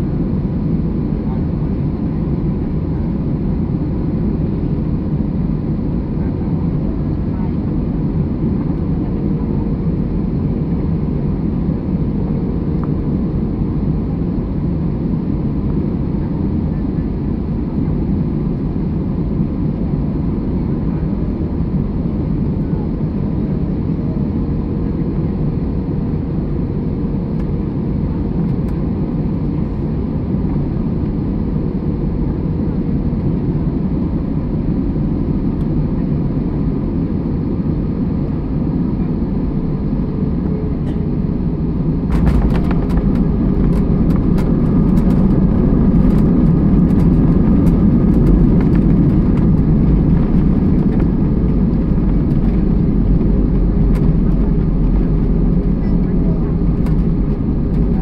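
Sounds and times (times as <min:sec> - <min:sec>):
aircraft cabin noise: 0:00.3 - 0:58.0
wheels rumbling on runway: 0:40.2 - 0:58.0.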